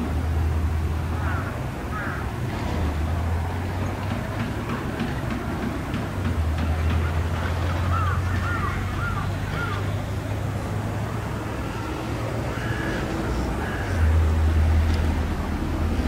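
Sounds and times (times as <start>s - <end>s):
outdoor noise: 0.0s - 16.0s
bird calls: 6.6s - 10.0s.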